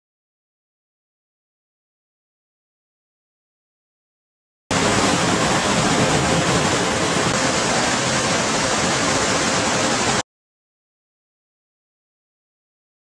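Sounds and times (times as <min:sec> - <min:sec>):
spraying water in car wash: 0:04.7 - 0:10.2.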